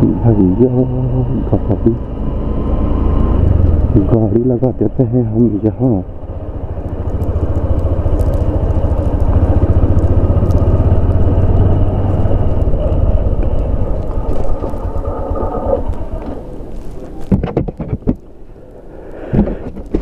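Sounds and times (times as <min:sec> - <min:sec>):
motorcycle engine running: 0:00.8 - 0:16.4.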